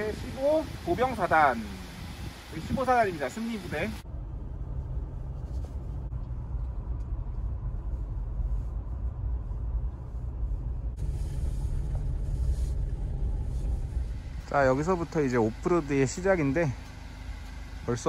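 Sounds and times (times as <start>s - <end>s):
car interior engine and tyre rumble: 3.8s - 18.0s.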